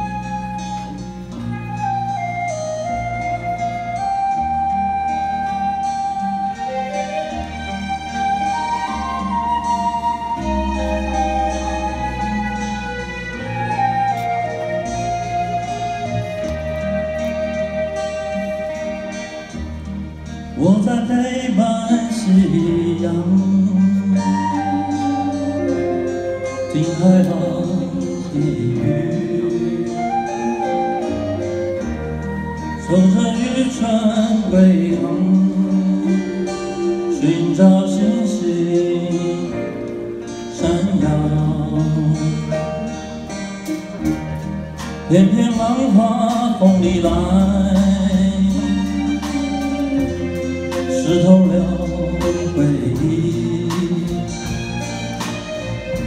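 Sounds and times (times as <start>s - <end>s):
acoustic guitar: 0.0s - 56.0s
keyboard: 0.0s - 56.0s
live band playing folk ballad: 0.0s - 56.0s
man singing: 20.5s - 31.6s, 32.4s - 43.3s, 45.0s - 54.8s
drum kit: 31.8s - 56.0s.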